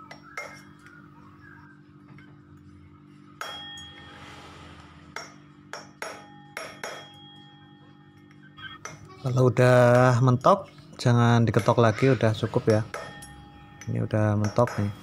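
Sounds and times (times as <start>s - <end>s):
hammer tapping metal: 3.4s - 4.0s, 5.2s - 7.6s, 9.8s - 10.6s, 12.7s - 15.0s.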